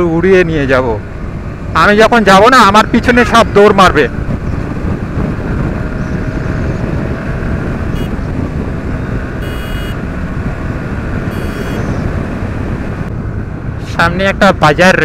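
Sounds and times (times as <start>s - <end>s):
wind rumble on microphone: 1.0s - 15.0s
short high-pitched tones: 9.4s - 10.0s, 11.3s - 11.9s
motorcycle engine running: 10.8s - 12.0s.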